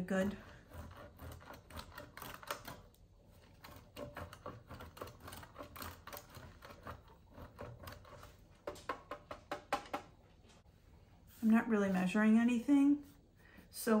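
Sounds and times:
cheese rasping on box grater: 0:00.0 - 0:08.5.

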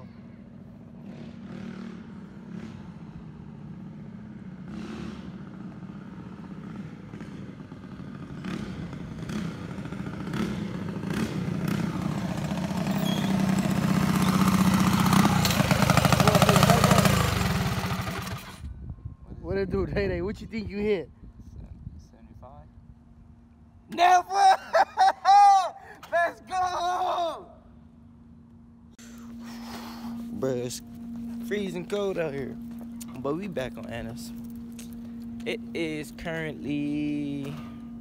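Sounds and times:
mini bike engine running: 0:00.9 - 0:18.6.

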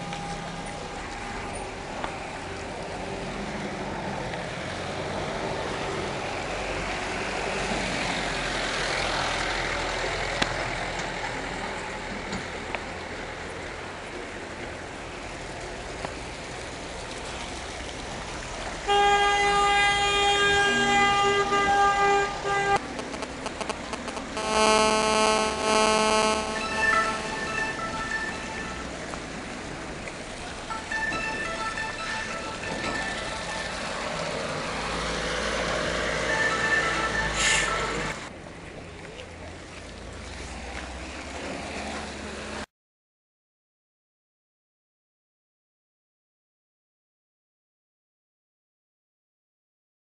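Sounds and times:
vehicle driving on wet street: 0:00.0 - 0:42.7
car horn blasts: 0:18.9 - 0:28.8.

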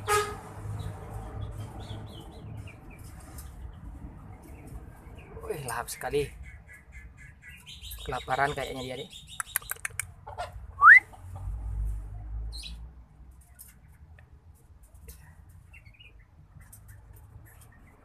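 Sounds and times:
quick clicks: 0:09.4 - 0:10.2.

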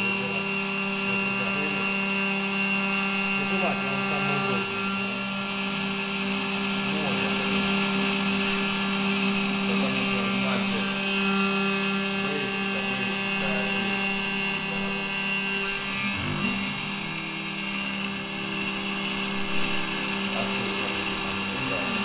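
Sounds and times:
milling spindle high whine: 0:00.0 - 0:22.0
hiss of metal cutting: 0:16.9 - 0:22.0.

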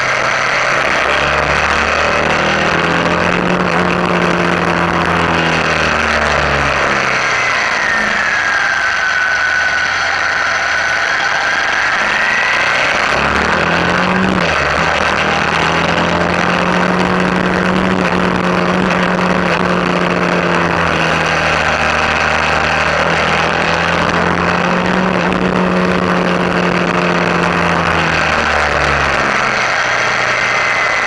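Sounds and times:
motorcycle engine running: 0:00.0 - 0:31.0.

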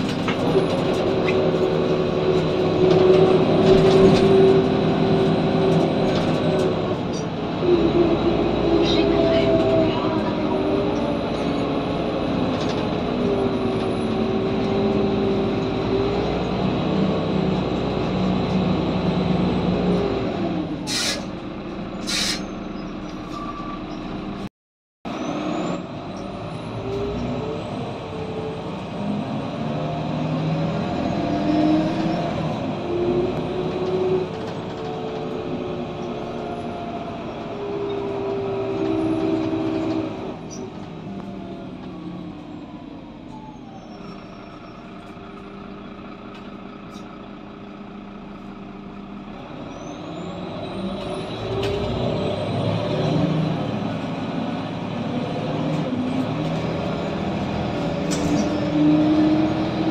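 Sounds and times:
bus engine droning: 0:00.0 - 0:24.5, 0:25.1 - 0:59.9
air brake hisses: 0:20.9 - 0:21.3, 0:22.0 - 0:22.5.

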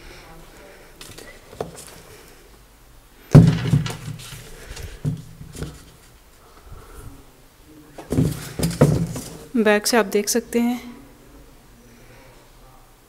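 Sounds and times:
sneakers rustling: 0:01.1 - 0:02.2, 0:03.3 - 0:06.2, 0:08.0 - 0:09.6
sneakers knocking: 0:03.4 - 0:06.1, 0:08.0 - 0:09.5.

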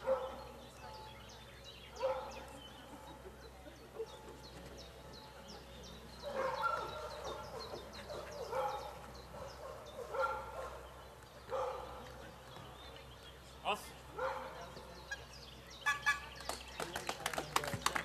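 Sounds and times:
dog barking: 0:00.0 - 0:01.1, 0:02.0 - 0:02.4, 0:06.2 - 0:10.9, 0:11.5 - 0:12.0, 0:14.2 - 0:14.7.

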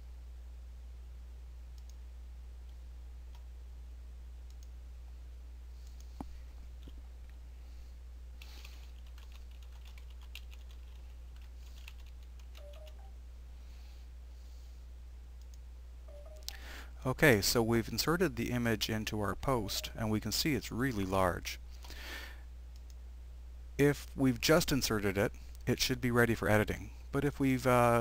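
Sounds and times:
low electrical hum: 0:00.0 - 0:28.0
keyboard typing: 0:08.4 - 0:13.1.

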